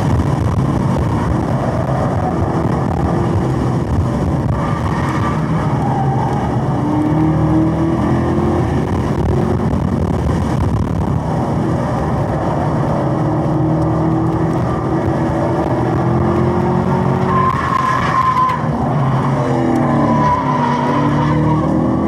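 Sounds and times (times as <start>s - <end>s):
car engine pulling hard: 0.0s - 22.0s
tires squealing: 0.8s - 3.4s, 4.2s - 7.6s, 17.0s - 22.0s.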